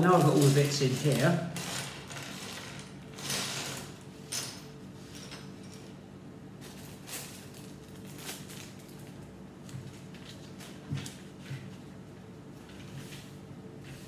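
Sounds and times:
plastic bag crinkling: 6.6s - 11.2s.

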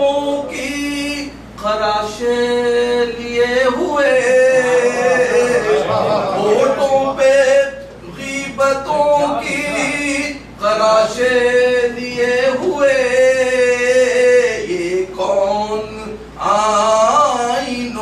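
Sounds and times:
man singing unaccompanied: 0.0s - 18.0s.

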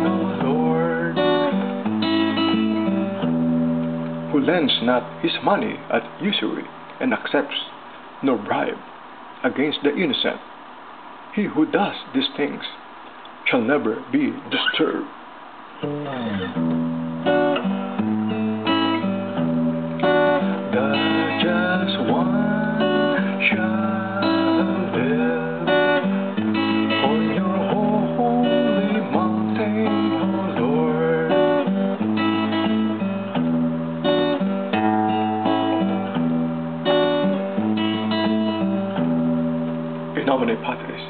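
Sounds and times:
acoustic guitar music: 0.0s - 10.4s, 11.3s - 41.0s.

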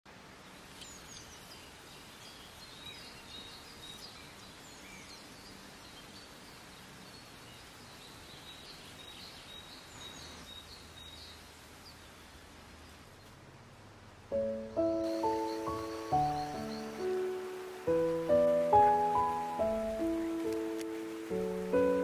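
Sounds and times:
faint background hiss: 0.1s - 22.0s
birds chirping and whistling: 14.8s - 17.6s.

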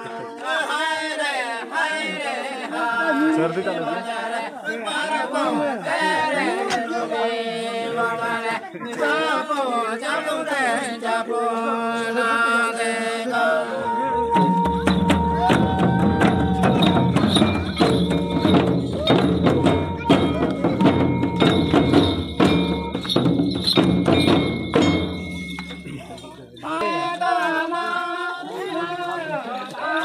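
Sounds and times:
men singing a folk chant: 0.0s - 21.2s, 26.6s - 30.0s
hand-beaten drums: 13.9s - 27.0s.

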